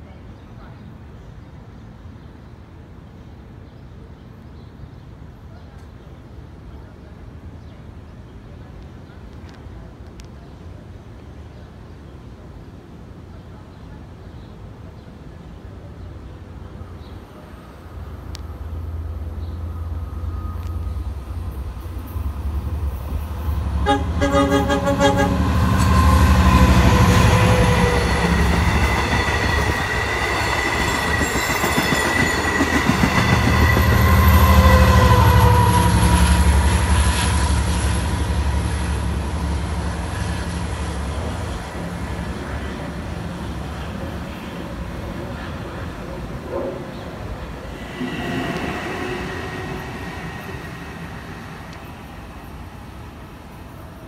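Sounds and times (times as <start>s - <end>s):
train rumbling past: 10.6s - 54.0s
train horn: 23.7s - 29.9s, 32.8s - 40.6s, 47.8s - 51.9s.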